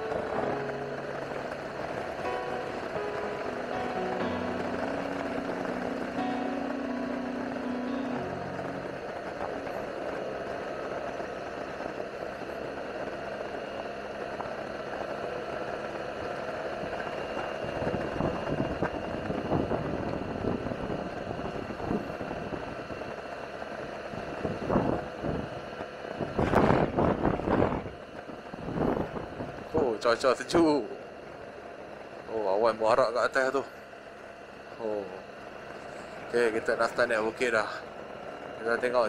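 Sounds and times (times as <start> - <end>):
scooter engine cruising: 0.0 - 39.0
wind rushing over microphone: 17.6 - 23.1, 24.1 - 25.6, 26.2 - 29.8.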